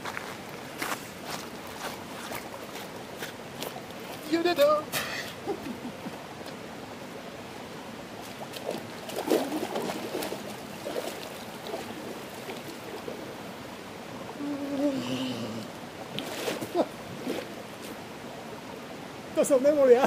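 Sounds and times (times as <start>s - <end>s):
water sloshing and splashing: 1.3s - 4.3s, 8.1s - 15.0s, 15.6s - 18.4s.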